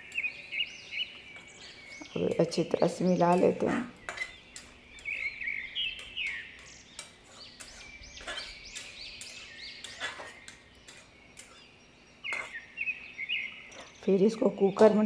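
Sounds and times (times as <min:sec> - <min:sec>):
small birds chirping: 0:00.0 - 0:15.0
metal spatula scraping a pot: 0:01.3 - 0:12.6.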